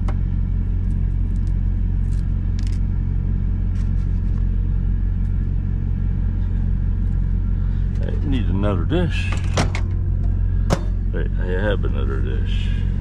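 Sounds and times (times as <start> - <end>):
truck diesel engine idling: 0.0 - 13.0
eggshell crackling as peeled: 0.8 - 2.9.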